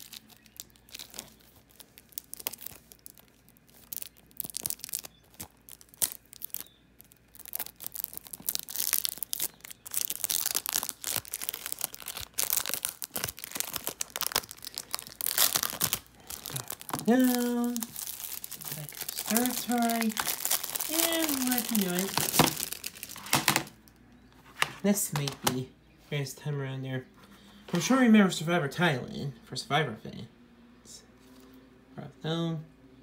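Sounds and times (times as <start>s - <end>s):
plastic packaging crinkling: 0.0s - 24.0s.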